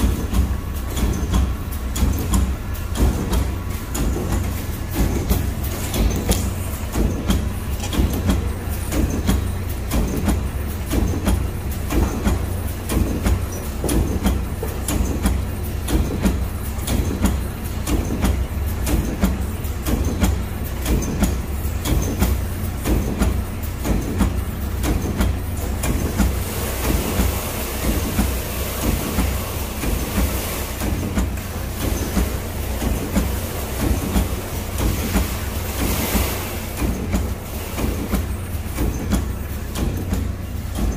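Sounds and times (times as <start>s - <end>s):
welding machine humming and clattering: 0.0s - 40.9s
hiss: 26.2s - 38.9s.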